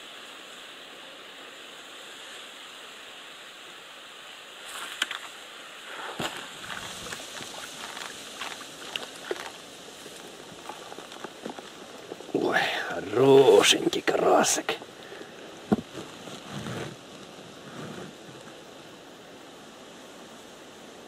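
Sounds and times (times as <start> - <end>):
wind and water hiss: 0.0 - 21.0
fish splashing in water: 6.1 - 12.3.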